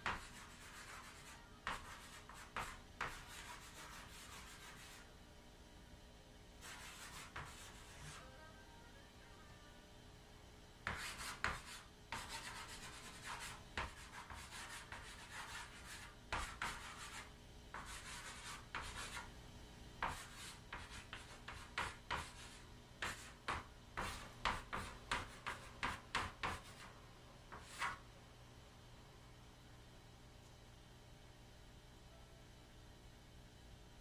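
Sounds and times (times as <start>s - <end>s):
chalk scratching on chalkboard: 0.0s - 5.1s, 6.6s - 8.3s, 10.8s - 19.3s, 20.0s - 28.0s.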